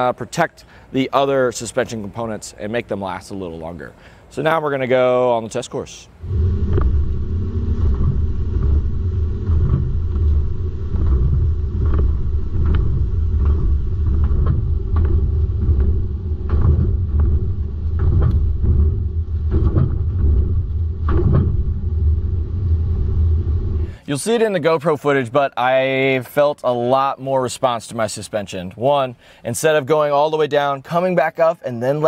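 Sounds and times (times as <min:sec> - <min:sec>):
suspension knocks and rattles: 0:06.2 - 0:23.9
road and wind rumble: 0:06.2 - 0:24.0.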